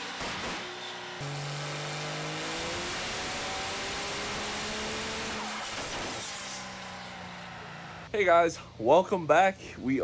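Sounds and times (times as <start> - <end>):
diesel truck engine revving: 0.0 - 8.1
exhaust and turbo rush: 0.0 - 8.1.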